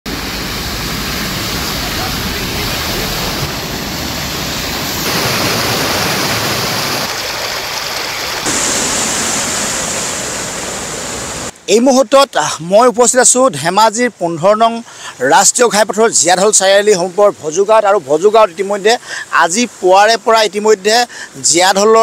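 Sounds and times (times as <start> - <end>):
floodwater rushing over road: 0.1 - 11.6.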